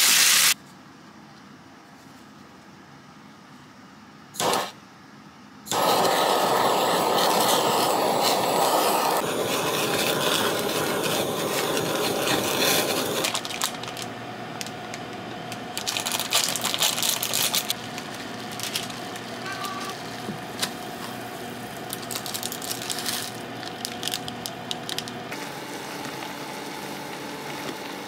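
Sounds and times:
kitchen torch hissing: 0.0s - 0.6s, 4.4s - 4.8s, 5.7s - 13.8s
plastic packet crinkling: 13.2s - 20.8s, 21.8s - 25.3s.

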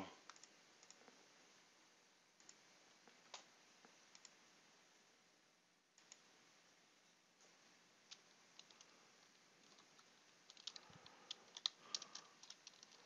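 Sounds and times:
computer mouse clicks: 0.2s - 1.2s, 2.4s - 2.6s, 4.1s - 4.4s, 6.0s - 6.3s, 8.1s - 13.0s.

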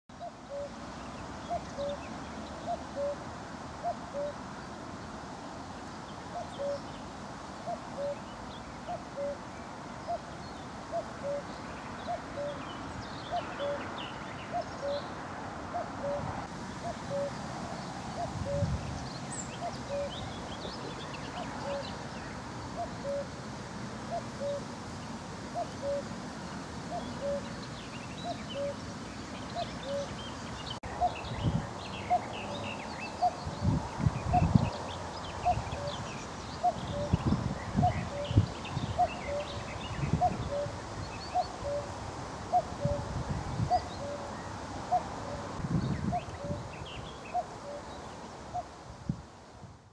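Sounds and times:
cuckoo calling: 0.2s - 0.8s, 1.5s - 3.2s, 3.8s - 4.4s, 6.3s - 6.9s, 7.7s - 9.4s, 10.9s - 12.7s, 13.3s - 13.8s, 14.5s - 15.1s, 15.8s - 17.4s, 18.2s - 22.0s, 22.8s - 23.3s, 24.1s - 24.7s, 25.5s - 26.1s, 26.9s - 27.5s, 28.2s - 28.8s, 29.6s - 30.2s, 35.4s - 41.9s, 43.7s - 47.9s
small birds chirping: 24.0s - 41.9s.

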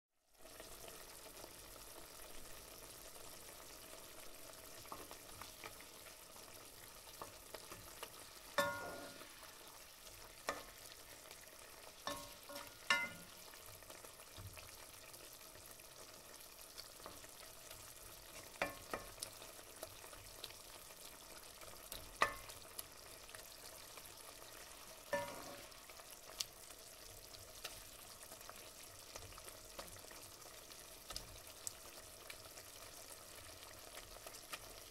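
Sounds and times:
fish sizzling in oil: 0.2s - 34.9s
utensil clinking metal pan: 8.6s - 9.3s, 12.1s - 13.4s, 25.2s - 25.6s.

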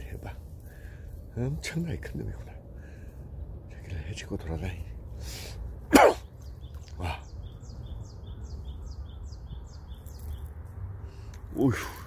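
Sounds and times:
steady low rumble: 0.0s - 12.0s
small bird chirping: 6.2s - 11.7s.

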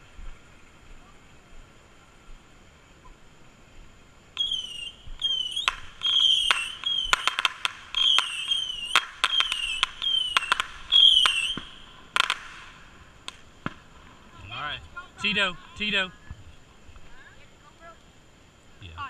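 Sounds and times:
firework cracking pops: 4.3s - 14.4s
whistling fireworks: 4.3s - 14.4s.

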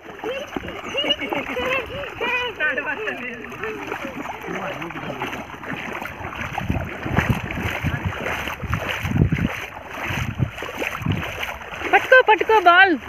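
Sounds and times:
feet splashing through water: 0.0s - 13.0s
wind gusts on microphone: 5.7s - 12.1s.

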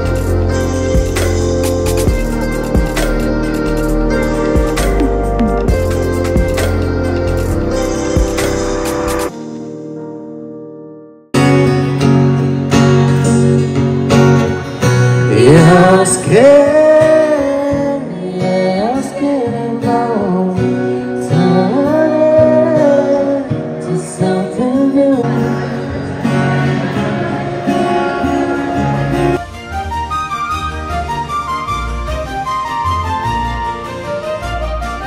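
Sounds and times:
acoustic guitar strumming: 0.0s - 10.8s, 11.4s - 34.5s
woman singing: 15.3s - 29.1s.

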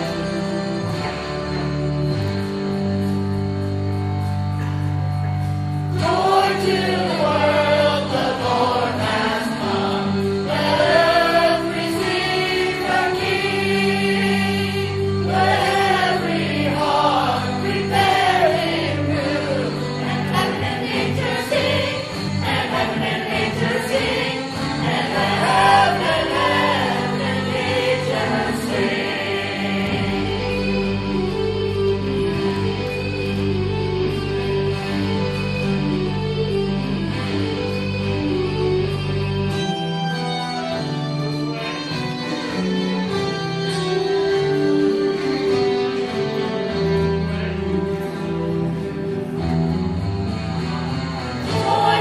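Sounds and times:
held backing chords: 0.0s - 52.0s
group singing together: 6.0s - 31.1s, 51.4s - 52.0s.

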